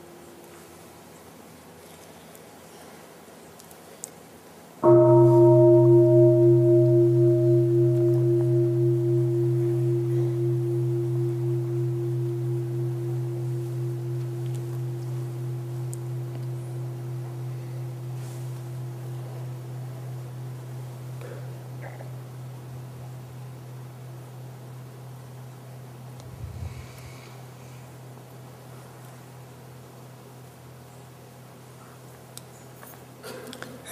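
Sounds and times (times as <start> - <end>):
meditation bell ringing: 4.8 - 21.7.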